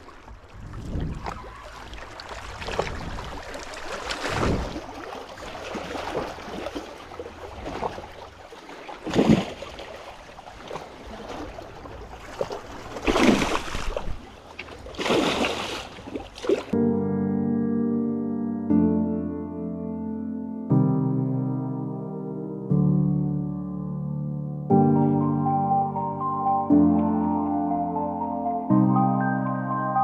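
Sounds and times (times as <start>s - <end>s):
water sloshing and splashing: 0.0s - 16.8s
water surges: 0.0s - 16.8s.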